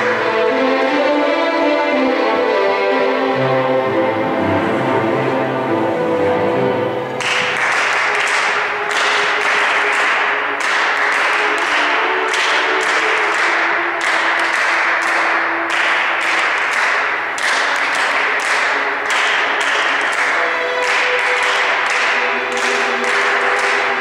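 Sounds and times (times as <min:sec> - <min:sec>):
rhythmic tapping clatter: 0:06.9 - 0:24.0.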